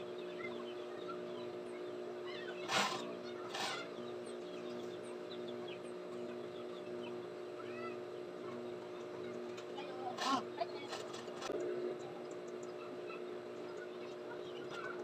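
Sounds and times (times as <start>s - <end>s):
sewing machine motor humming: 1.1s - 7.4s, 8.0s - 11.6s.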